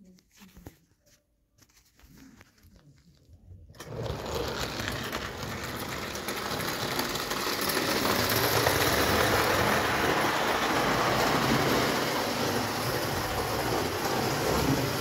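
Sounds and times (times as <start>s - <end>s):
clockwork motor whirring: 3.8s - 15.0s
toy train wheels rattling on track: 3.8s - 15.0s.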